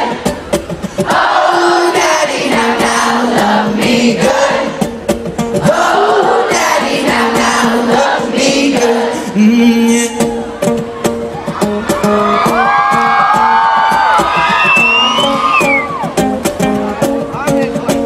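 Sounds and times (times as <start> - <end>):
crowd singing and shouting: 0.0 - 16.2
live music from stage: 0.0 - 18.0
crowd cheering: 9.0 - 16.5.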